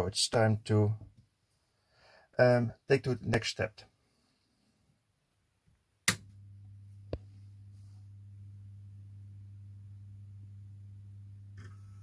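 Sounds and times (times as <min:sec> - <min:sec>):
sharp click: 0:06.0 - 0:06.3
floppy drive humming: 0:06.0 - 0:12.0.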